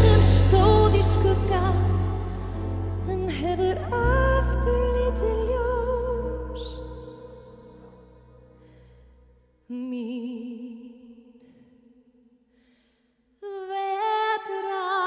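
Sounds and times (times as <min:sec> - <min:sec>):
woman singing a ballad: 0:00.0 - 0:08.1, 0:09.6 - 0:11.6, 0:13.4 - 0:15.0.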